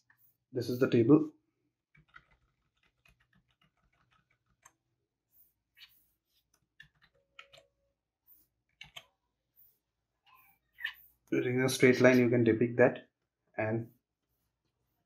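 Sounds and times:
computer keys clicking: 2.0 - 4.8, 6.8 - 7.7, 8.7 - 9.1.

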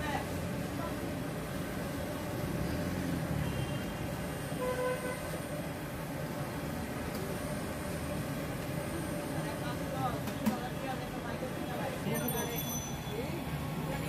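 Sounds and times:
street noise rumble: 0.0 - 14.0.

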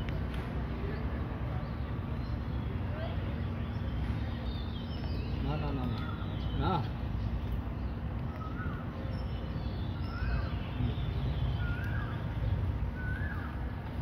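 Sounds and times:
bird chirping: 0.8 - 14.0.

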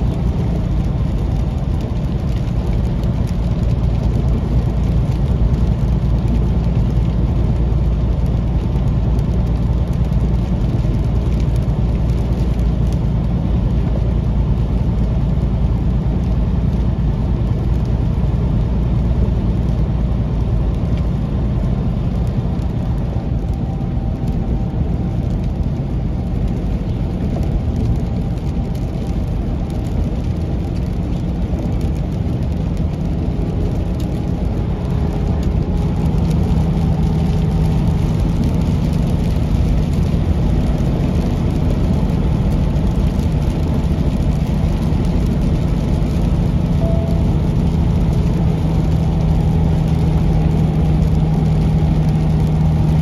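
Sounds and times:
truck engine and tyre drone: 0.0 - 53.0.

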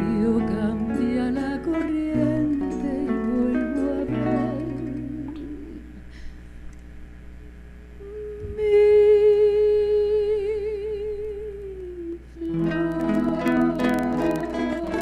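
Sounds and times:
quiet musical accompaniment: 12.4 - 15.0.

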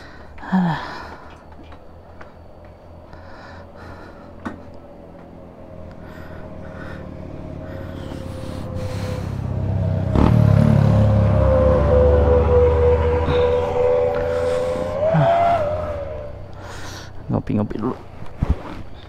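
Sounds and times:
motorcycle engine running: 4.2 - 16.8.

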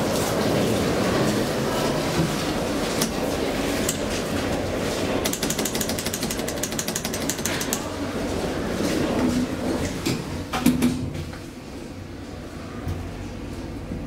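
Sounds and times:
rapid mechanical rattle: 3.0 - 8.0.

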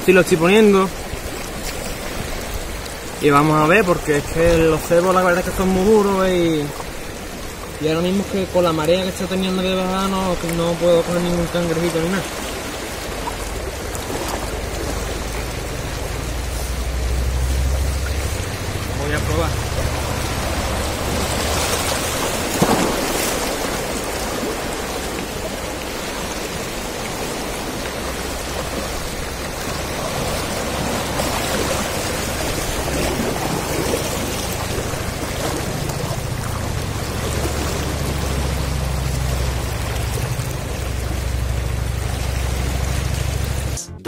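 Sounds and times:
waves splashing over rocks: 0.0 - 43.8
low rumble: 13.1 - 24.0, 32.1 - 44.0
sharp splash or knock: 20.0 - 24.5.

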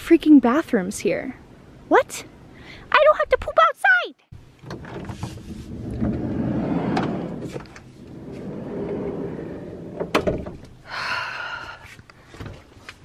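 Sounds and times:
sliding door rolling on track: 4.6 - 10.7.

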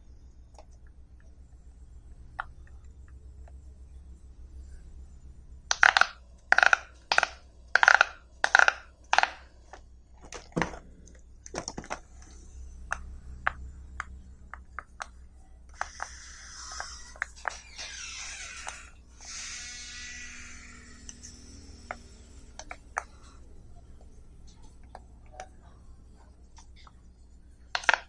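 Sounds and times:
pop-it toy bubbles popping: 5.7 - 9.4, 27.8 - 28.0.

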